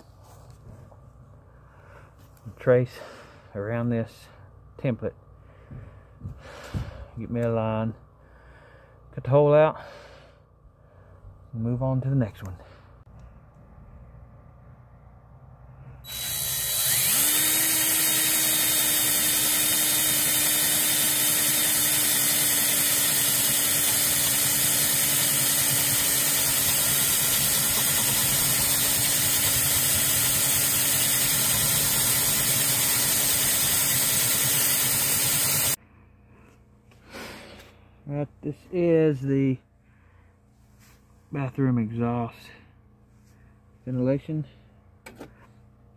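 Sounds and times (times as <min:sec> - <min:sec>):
cordless drill boring wood: 0:16.1 - 0:35.8.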